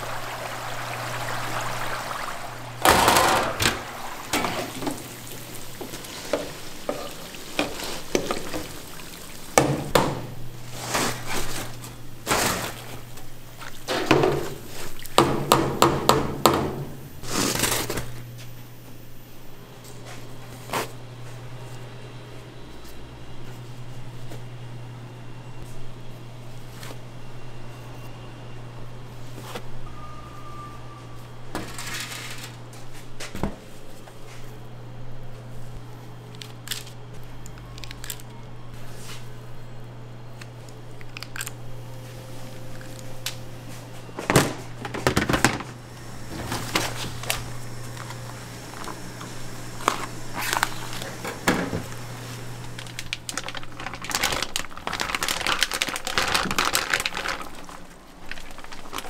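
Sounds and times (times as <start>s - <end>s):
plastic crinkling: 46.6s - 51.2s, 51.9s - 59.0s.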